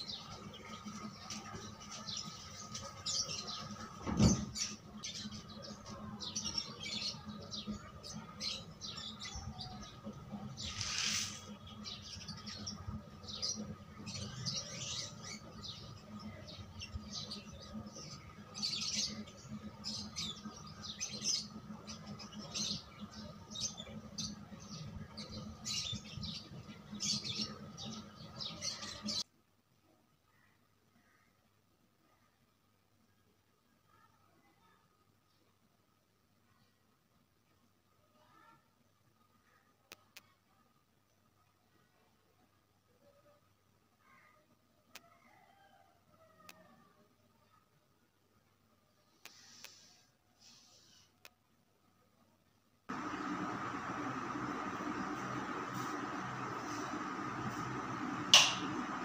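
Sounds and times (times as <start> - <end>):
birds chirping: 0.0 - 29.2, 52.9 - 59.0
steady hum: 52.9 - 59.0.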